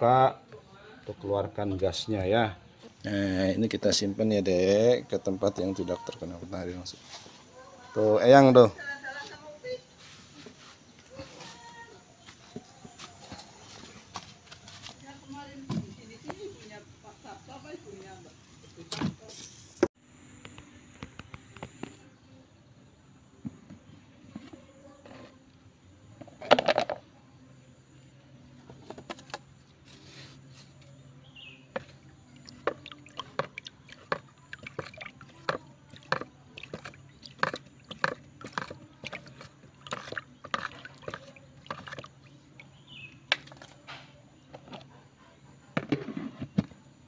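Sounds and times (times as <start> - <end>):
plastic lid clatter: 26.2 - 27.0
stick knocking plastic bucket: 31.7 - 42.1
liquid sloshing in bucket: 31.8 - 42.8.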